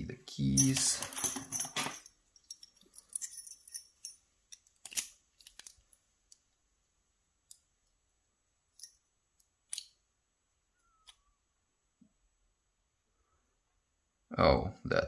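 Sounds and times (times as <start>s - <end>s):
metallic clicks of lock parts: 0.6s - 6.4s, 8.7s - 10.0s.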